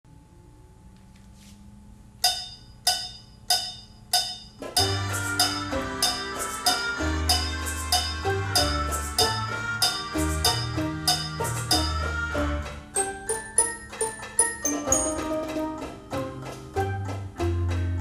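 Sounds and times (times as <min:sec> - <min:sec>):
metallic count-in strikes: 0:02.2 - 0:12.2, 0:13.0 - 0:15.5
mechanical instrument ensemble tune: 0:02.2 - 0:18.0.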